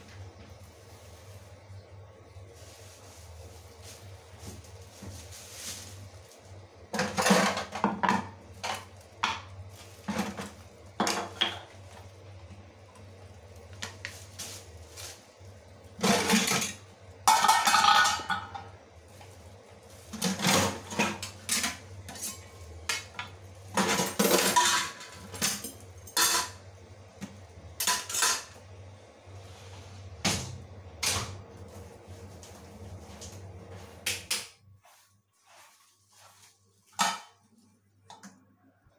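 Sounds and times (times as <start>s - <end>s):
steel dishes clattering: 16.0s - 18.7s, 23.7s - 26.6s, 27.8s - 28.6s.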